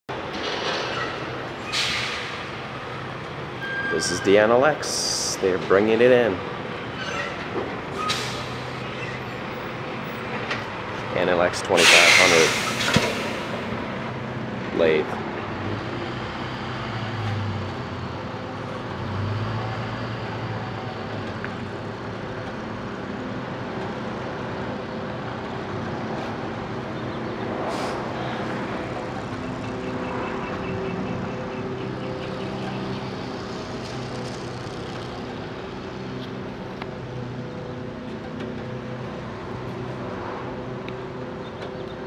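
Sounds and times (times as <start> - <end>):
burst of noise: 11.8 - 13.7.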